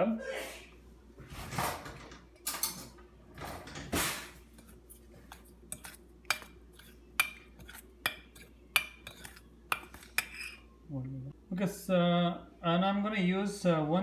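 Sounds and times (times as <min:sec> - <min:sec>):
spoon scraping in bowl: 0:04.4 - 0:10.7
spoon clinking against metal bowl: 0:05.7 - 0:10.6.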